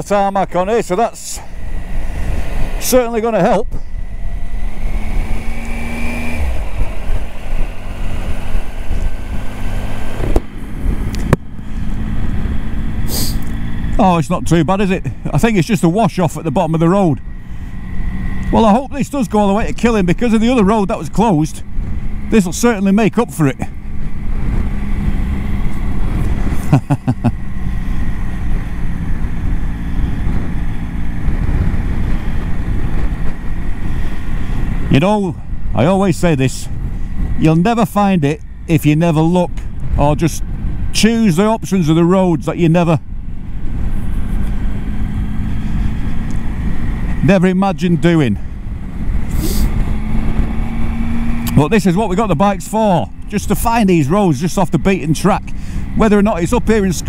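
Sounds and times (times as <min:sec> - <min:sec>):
motorcycle engine running: 0:00.0 - 0:57.0
wind noise: 0:00.0 - 0:57.0.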